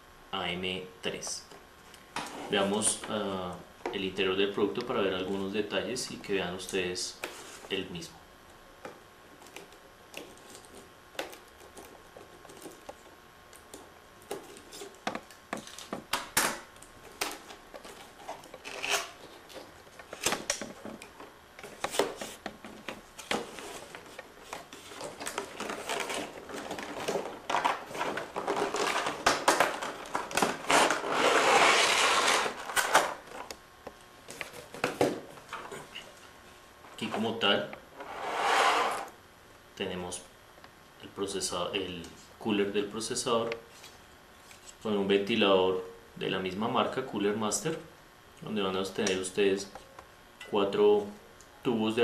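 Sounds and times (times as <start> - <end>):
plastic packaging crinkling: 9.4 - 33.5
cardboard box being cut: 30.6 - 32.6.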